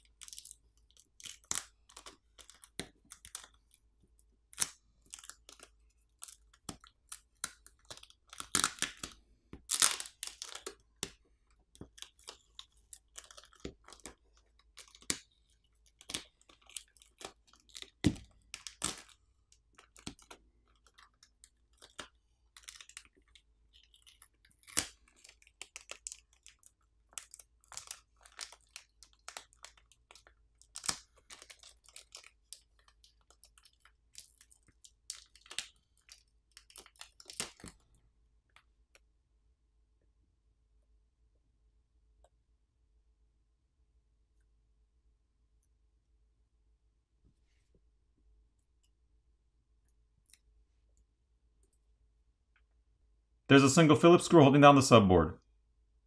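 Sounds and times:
plastic film crinkling: 11.7 - 37.8.

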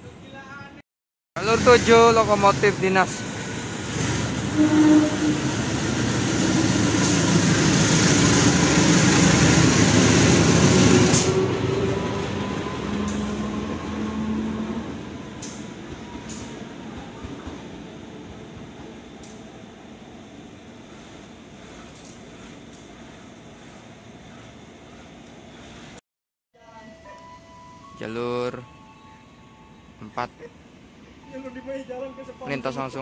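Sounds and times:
locomotive engine passing: 1.4 - 25.9.

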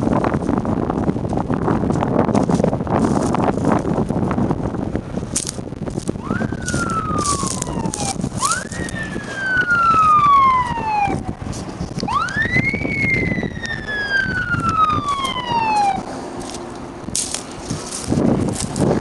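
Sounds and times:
fire engine siren wailing: 6.1 - 18.0.

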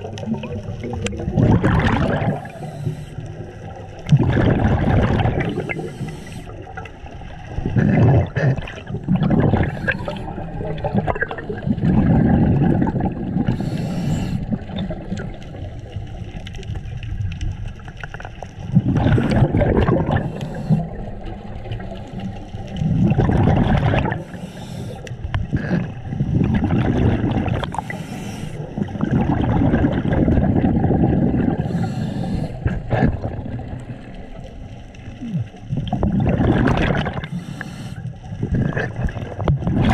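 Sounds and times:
exhaled bubbles rumbling: 0.0 - 39.9
regulator inhale hiss: 2.4 - 3.4, 5.5 - 6.6, 9.7 - 10.4, 13.5 - 14.5, 20.2 - 21.0, 24.2 - 25.3, 27.7 - 28.7, 31.6 - 32.7, 37.2 - 38.2.

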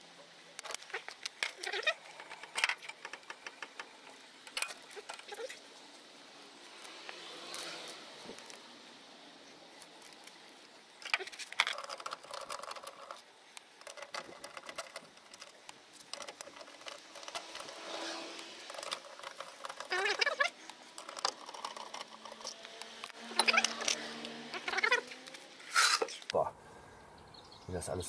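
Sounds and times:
metal clicking and rattling: 0.6 - 5.6, 11.0 - 25.4
short rising squeaks: 13.9 - 26.2.

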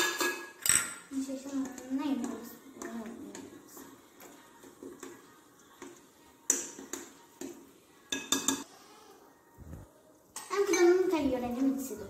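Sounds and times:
metal spoon clinking against glass: 0.0 - 1.0, 8.1 - 8.6.

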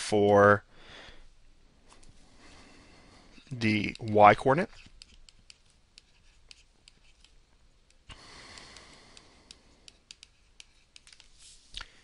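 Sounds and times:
soft hiss: 0.4 - 12.0
stylus tapping on tablet screen: 3.8 - 11.3.

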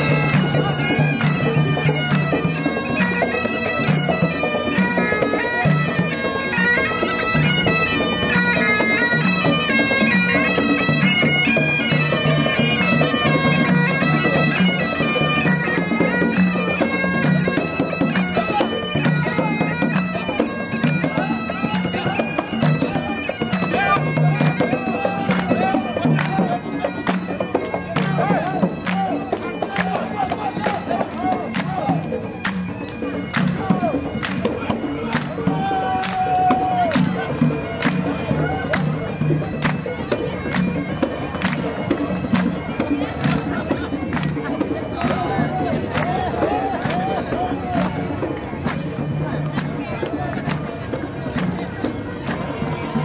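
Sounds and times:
bagpipes playing a tune: 0.0 - 53.0.

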